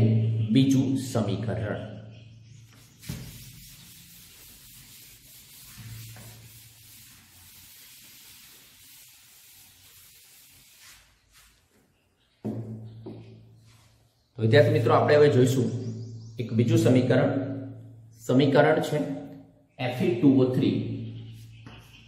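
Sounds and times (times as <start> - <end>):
eraser rubbing on chalkboard: 2.7 - 11.6.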